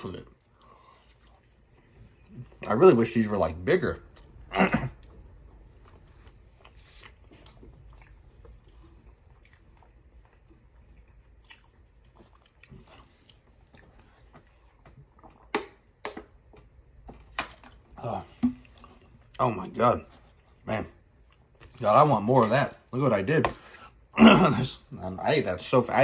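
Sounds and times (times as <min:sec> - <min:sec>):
person chewing crunchy food: 0:04.1 - 0:15.6.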